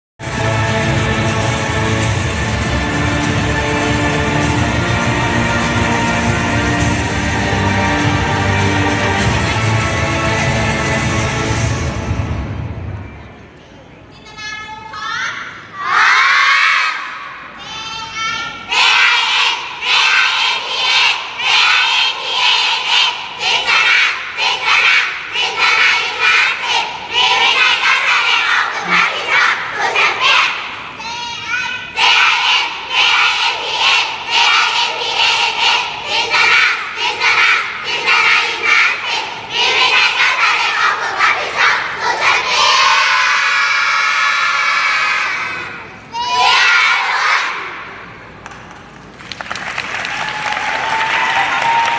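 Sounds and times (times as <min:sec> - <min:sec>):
girls chanting a cheer: 0:15.0 - 0:48.0
audience applause and cheering: 0:48.7 - 0:51.9
children cheering: 0:49.7 - 0:51.9.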